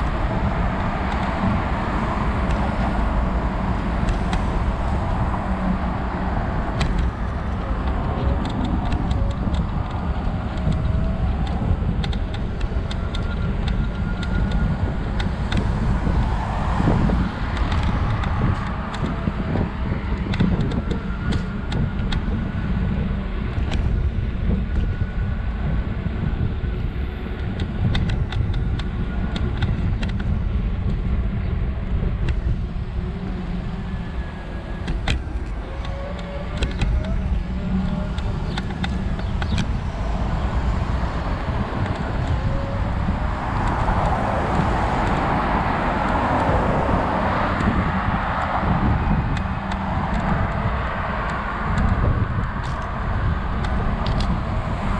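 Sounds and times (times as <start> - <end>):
cars passing: 0.0 - 54.9
road rumble: 0.0 - 54.9
wind buffeting microphone: 0.0 - 54.9
scattered clicks: 6.7 - 16.4, 17.2 - 22.4, 27.4 - 31.1, 34.4 - 50.6, 51.2 - 54.5.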